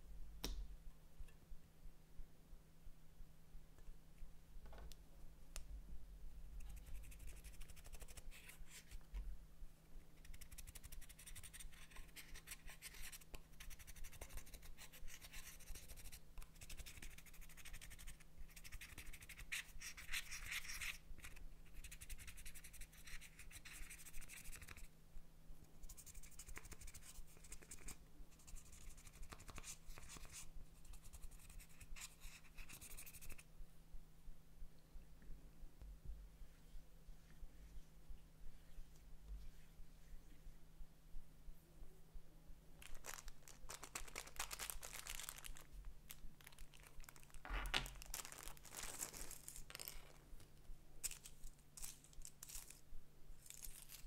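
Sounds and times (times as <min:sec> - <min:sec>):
faint steady hum: 0:00.0 - 0:54.0
gritty scratching of eyeshadow: 0:10.2 - 0:24.9.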